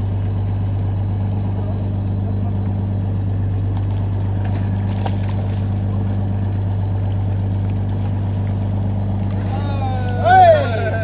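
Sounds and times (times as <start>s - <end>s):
boat engine humming: 0.0s - 11.0s
landing net splashing in water: 3.6s - 11.0s.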